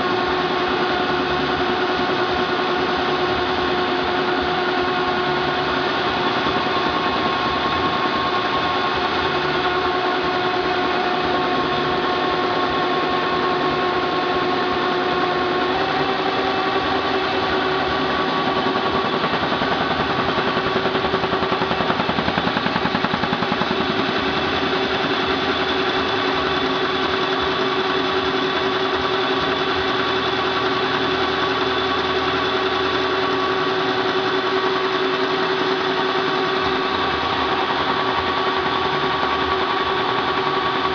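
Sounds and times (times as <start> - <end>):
constant machine hum: 0.0 - 40.9.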